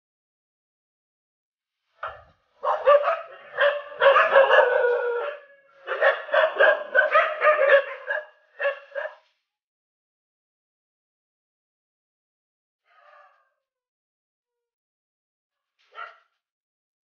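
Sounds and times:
dog barking: 2.0s - 9.3s, 15.9s - 16.4s.

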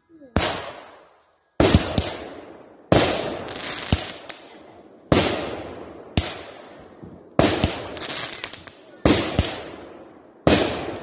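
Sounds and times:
fireworks bursting with sharp bangs: 0.1s - 11.0s
smaller firework pops: 0.3s - 11.0s.

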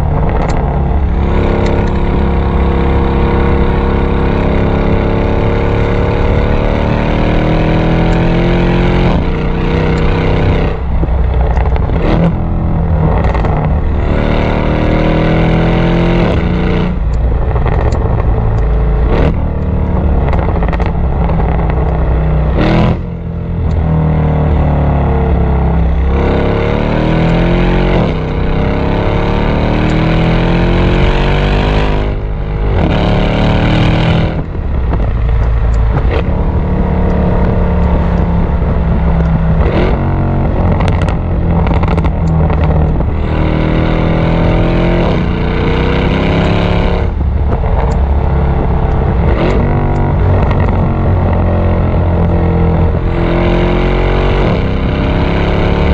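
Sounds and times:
exhaust pops and crackles: 0.0s - 4.6s, 8.9s - 14.0s, 16.2s - 24.0s, 32.0s - 43.3s, 46.0s - 53.3s
car exhaust revving: 0.0s - 55.9s.

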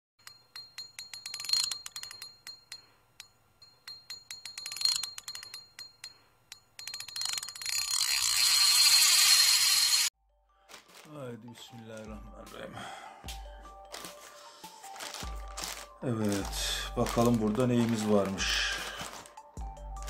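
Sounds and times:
rapid metallic clicks with ringing: 0.2s - 9.1s.

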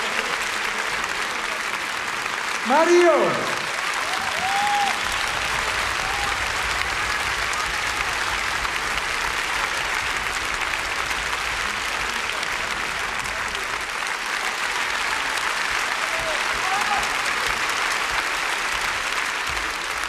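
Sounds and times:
concert audience applauding: 0.0s - 20.0s
person shouting in crowd: 2.6s - 5.0s.

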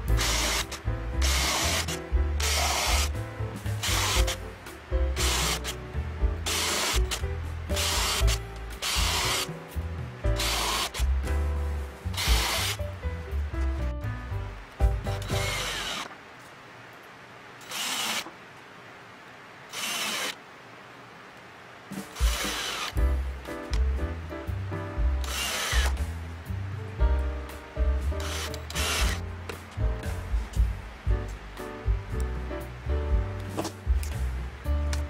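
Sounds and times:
background music: 0.0s - 16.0s, 21.9s - 35.0s
cordless drill driving screws: 0.2s - 3.1s, 3.8s - 4.4s, 5.2s - 5.8s, 6.4s - 9.5s, 10.4s - 11.1s, 12.1s - 12.8s, 15.2s - 16.1s, 17.6s - 18.3s, 19.7s - 20.4s, 22.1s - 23.0s, 25.2s - 26.0s, 28.2s - 29.2s.

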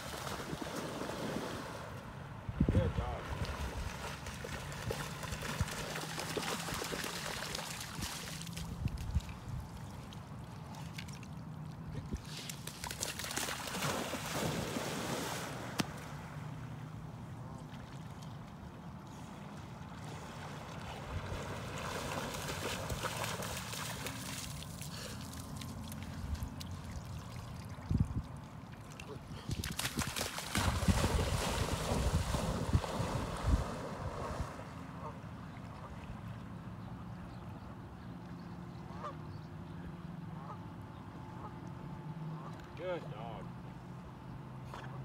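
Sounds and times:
water splashing and trickling: 3.1s - 36.6s.

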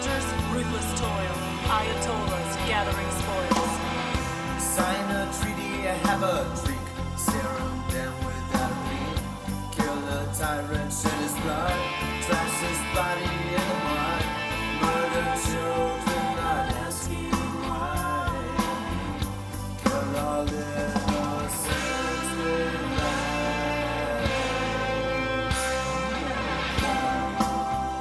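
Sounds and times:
rock song with drums and bass: 0.0s - 28.0s
sliding lead guitar line: 0.0s - 28.0s.

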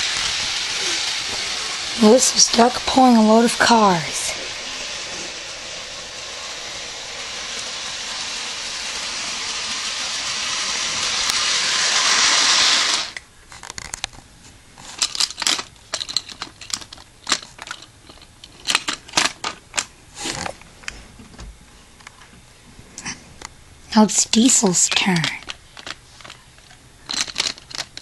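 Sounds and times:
toy train engine whirring: 0.0s - 13.2s, 14.9s - 20.4s, 23.9s - 28.0s
plastic toy trucks clicking: 15.0s - 19.9s, 25.0s - 28.0s.

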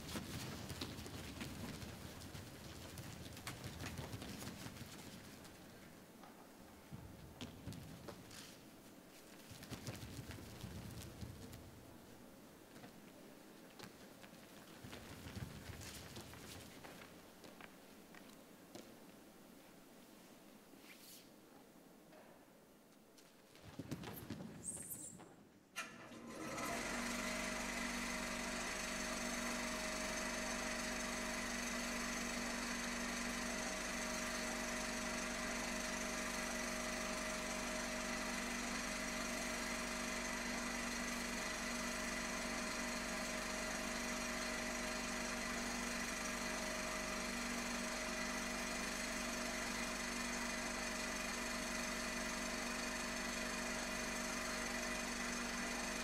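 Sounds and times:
buzzing machine hum: 26.3s - 56.0s.

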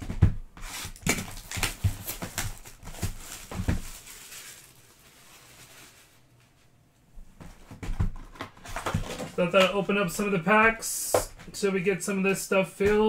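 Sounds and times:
cardboard rustling: 0.6s - 6.7s, 7.4s - 10.4s.

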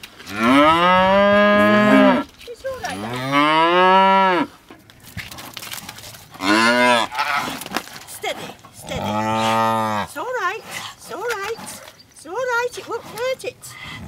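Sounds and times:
cattle mooing: 0.3s - 4.5s, 6.4s - 7.5s, 8.8s - 10.1s.

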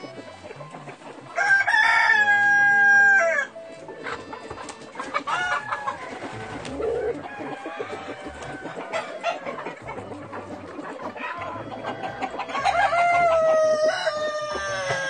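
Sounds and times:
hens clucking: 0.0s - 15.0s
rooster crowing: 1.4s - 3.5s, 5.3s - 9.5s, 11.5s - 15.0s.

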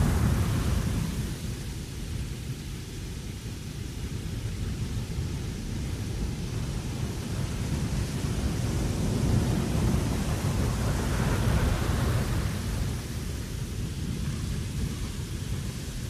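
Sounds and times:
wind blowing across deck: 0.0s - 16.0s.

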